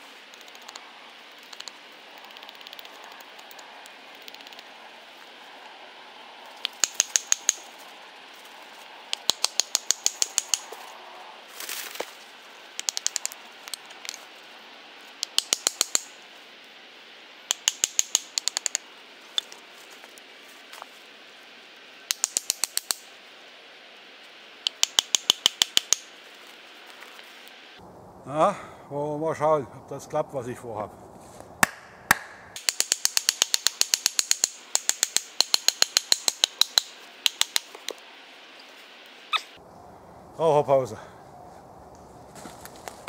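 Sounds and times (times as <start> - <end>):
hatchet knocking wooden wedges: 6.6 - 7.7, 9.1 - 10.8, 12.8 - 13.8, 15.2 - 16.1, 17.5 - 18.8, 22.1 - 23.0, 24.7 - 26.1, 31.6 - 38.0.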